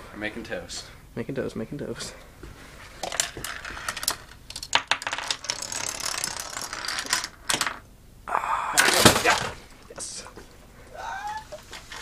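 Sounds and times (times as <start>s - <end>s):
dominoes toppling: 3.0s - 7.8s
object rolling down metal track: 3.0s - 7.8s.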